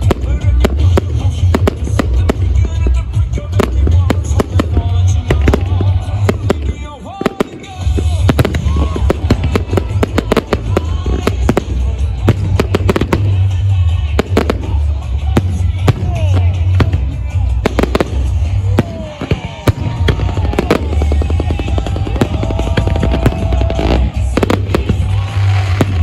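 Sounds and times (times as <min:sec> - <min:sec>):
fireworks bangs: 0:00.0 - 0:26.0.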